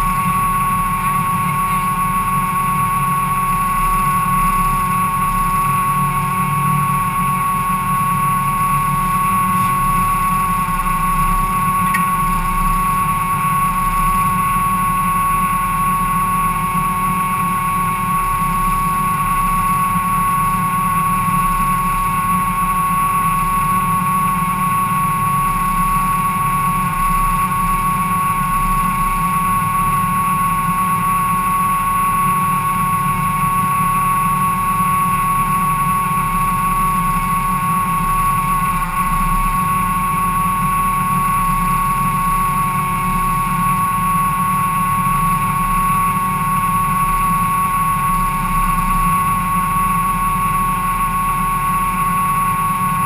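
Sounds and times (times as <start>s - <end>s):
high whine: 0.0s - 53.0s
race car engine idling: 0.0s - 53.0s.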